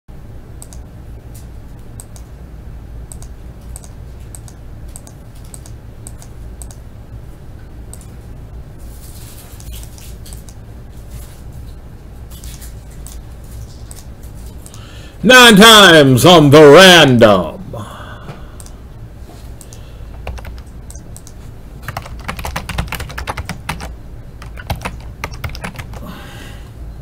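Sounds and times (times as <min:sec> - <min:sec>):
steady low hum: 0:00.1 - 0:27.0
mouse clicks: 0:03.1 - 0:06.8, 0:20.6 - 0:21.4.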